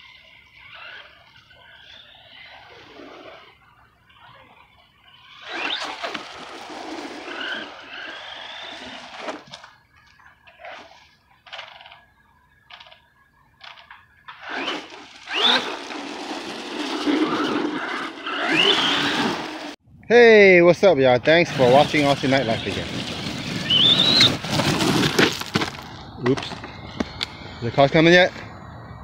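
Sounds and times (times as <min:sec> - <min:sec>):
electric motor whine: 0:00.0 - 0:09.8, 0:14.3 - 0:19.8
tyre noise on asphalt: 0:04.8 - 0:19.8, 0:21.4 - 0:29.0.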